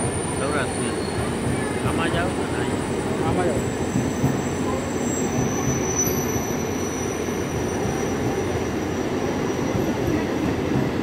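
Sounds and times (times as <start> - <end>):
train wheels rumbling on rails: 0.0 - 11.0.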